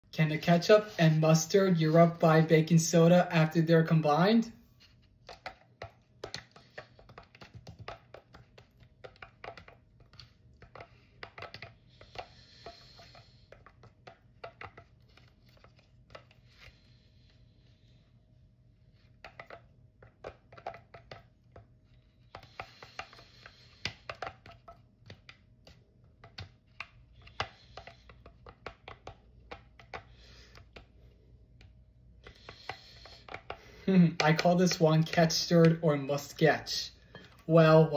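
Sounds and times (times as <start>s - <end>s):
spoon scraping plastic cup: 4.8s - 16.9s.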